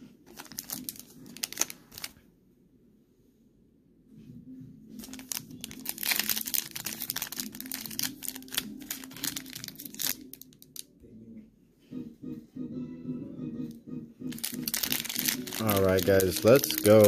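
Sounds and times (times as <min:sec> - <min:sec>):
foil wrapper crinkling: 0:00.3 - 0:02.2, 0:05.0 - 0:10.8, 0:14.3 - 0:17.0.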